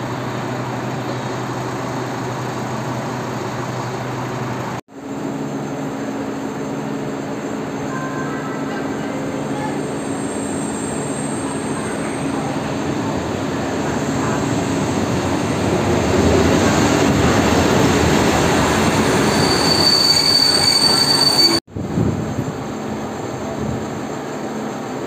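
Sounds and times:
train wheels rumbling on track: 0.0 - 25.0
high wheel squeal: 9.2 - 12.5, 18.7 - 21.6.

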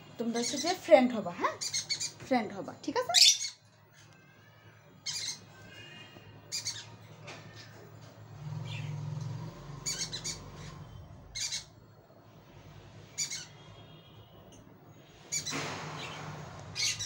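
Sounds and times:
parrots squawking: 1.5 - 2.2, 3.1 - 3.7, 5.0 - 7.8, 8.5 - 11.8, 13.1 - 13.6, 16.8 - 17.0.

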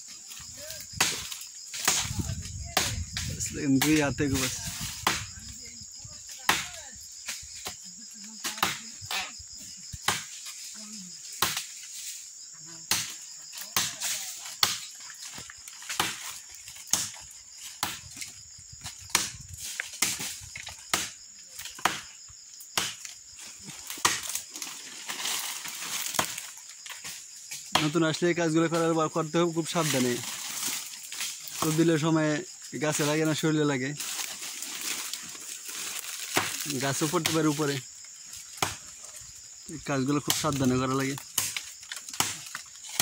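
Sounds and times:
high insect drone: 0.0 - 43.0
machete chopping tree trunk: 1.0 - 2.2, 5.0 - 5.4, 6.5 - 6.8, 10.0 - 10.4, 11.4 - 11.7, 12.9 - 14.9, 15.8 - 17.2, 17.8 - 18.2, 19.0 - 22.1, 22.7 - 23.2, 23.9 - 24.4, 26.0 - 26.5, 27.6 - 28.0, 36.2 - 36.6, 38.5 - 38.8, 41.2 - 43.0.

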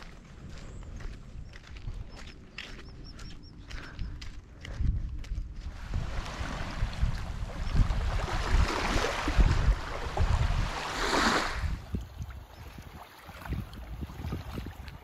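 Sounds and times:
wind buffeting microphone: 0.0 - 15.0
small waves washing on sand: 5.6 - 15.0.

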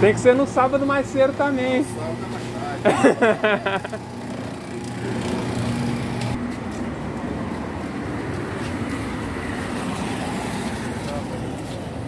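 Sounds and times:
road noise: 0.0 - 12.0
vehicle engine humming: 0.0 - 12.0.

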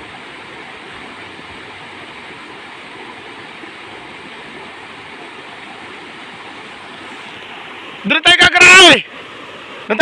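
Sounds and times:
river rushing over rocks: 0.0 - 10.0.

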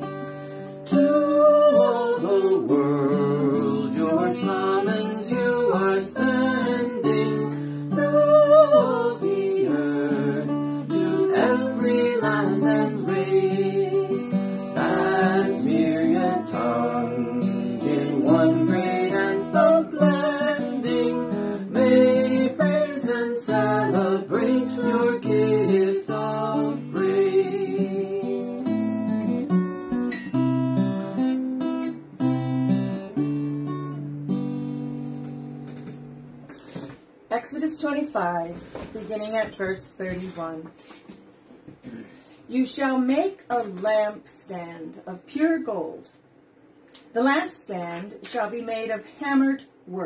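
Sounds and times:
strummed acoustic guitar: 0.0 - 37.8
woman and man singing a hymn: 0.9 - 28.9.

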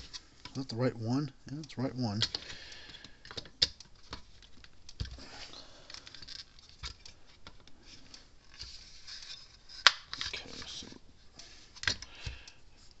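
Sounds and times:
light clicks of plastic parts: 1.5 - 5.2.

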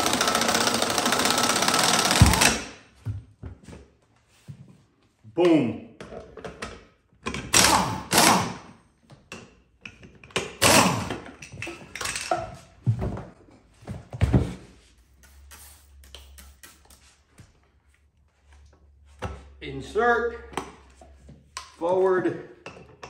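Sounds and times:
pneumatic impact wrench bursts: 0.0 - 2.8, 7.5 - 8.7, 10.6 - 11.2, 15.3 - 16.9.

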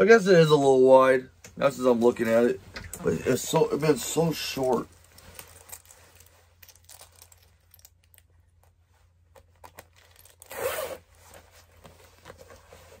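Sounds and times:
zipper clicks and rustles: 9.2 - 13.0
quick zip up: 10.4 - 11.4.

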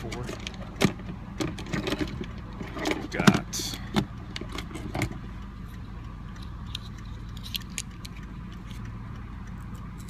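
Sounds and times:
steady low hum: 0.0 - 10.0
pocket tools clicking and rattling: 6.3 - 8.9.

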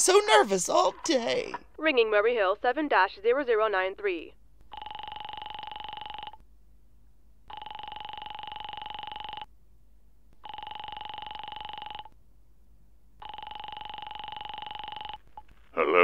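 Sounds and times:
telephone ringing tone: 4.7 - 6.4, 7.5 - 9.5, 10.4 - 12.1, 13.2 - 15.4.

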